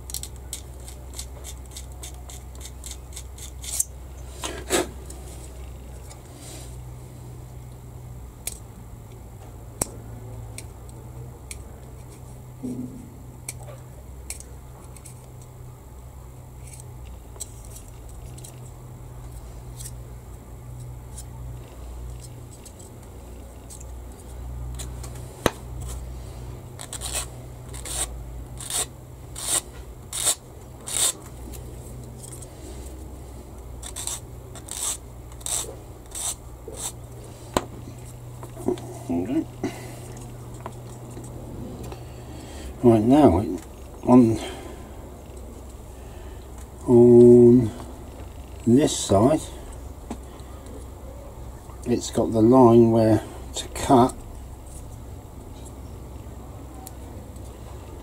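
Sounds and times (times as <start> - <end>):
steady low hum: 0.0 - 58.0
metal file scraping plastic: 26.8 - 31.2, 33.8 - 37.0.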